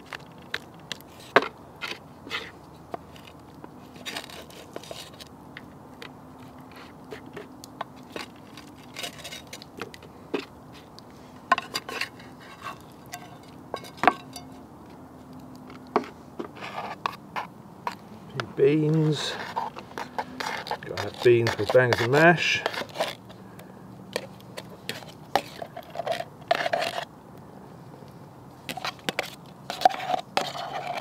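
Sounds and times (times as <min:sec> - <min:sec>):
utensils scraping wooden plates: 0:06.4 - 0:09.6, 0:11.5 - 0:14.6, 0:16.0 - 0:23.4, 0:24.2 - 0:27.1, 0:28.7 - 0:31.0.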